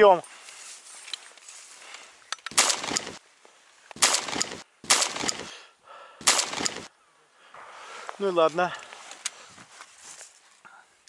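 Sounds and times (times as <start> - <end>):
gunshot echo: 2.5 - 3.2, 4.0 - 5.6, 6.2 - 6.9
shotgun blasts: 2.5 - 3.2, 4.0 - 5.6, 6.2 - 6.9.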